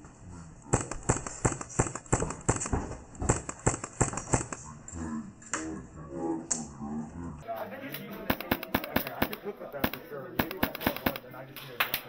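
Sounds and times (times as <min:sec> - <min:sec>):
footsteps on hard floor: 0:02.2 - 0:04.4
voices: 0:04.4 - 0:12.0.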